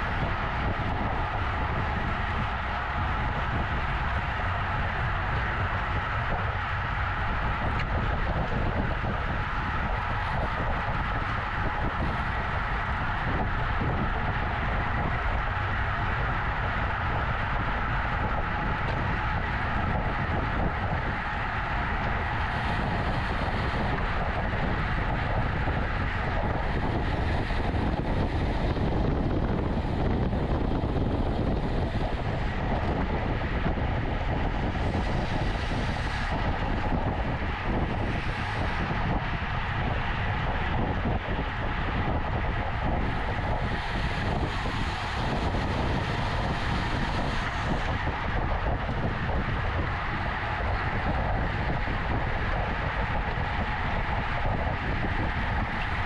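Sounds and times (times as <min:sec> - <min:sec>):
road noise rumble: 0:00.0 - 0:56.0
wind rushing over microphone: 0:00.0 - 0:56.0.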